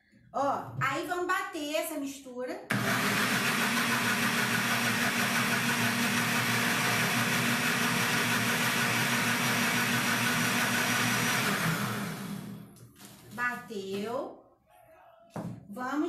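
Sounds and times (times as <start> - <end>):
blender running: 2.7 - 12.8.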